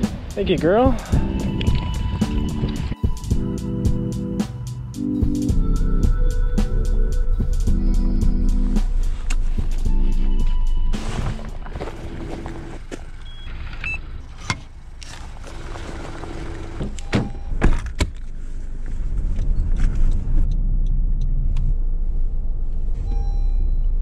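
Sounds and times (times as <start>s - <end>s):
car engine rumbling: 5.6s - 24.0s.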